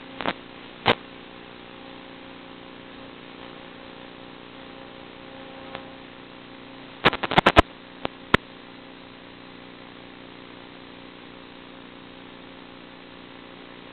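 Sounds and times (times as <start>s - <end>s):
electrical hum and hiss: 0.0s - 13.9s
sharp clicks: 7.0s - 8.4s.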